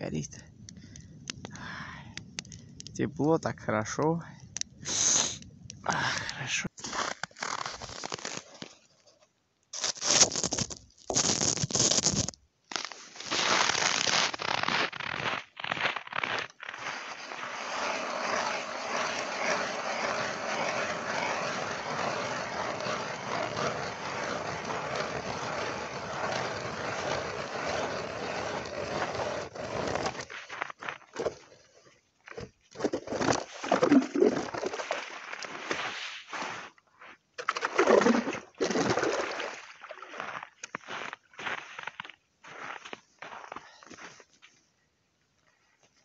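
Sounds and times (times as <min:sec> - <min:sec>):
ice crunching and scraping: 0:04.9 - 0:09.0, 0:09.8 - 0:44.4
ice auger grinding through ice: 0:06.8 - 0:08.4, 0:09.8 - 0:12.3, 0:13.6 - 0:30.3, 0:32.9 - 0:35.5, 0:37.6 - 0:39.2.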